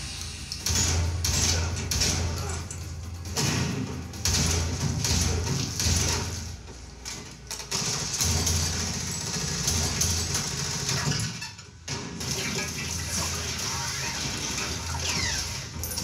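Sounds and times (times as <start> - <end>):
action movie soundtrack: 0.0 - 16.0.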